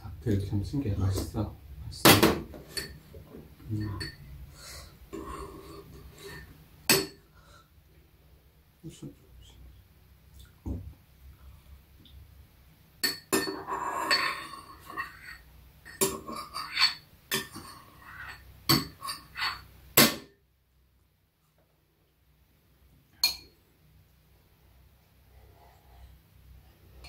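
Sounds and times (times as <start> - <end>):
metal spoon clinking on bowls: 2.7 - 3.0, 3.8 - 4.2, 5.9 - 7.2, 13.0 - 20.2, 23.2 - 23.6.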